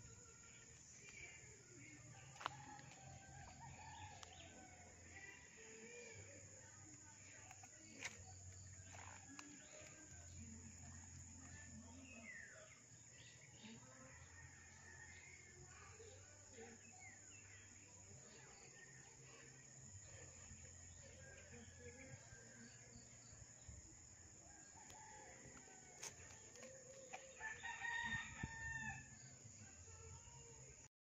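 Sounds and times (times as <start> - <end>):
rooster crowing: 27.3 - 29.1.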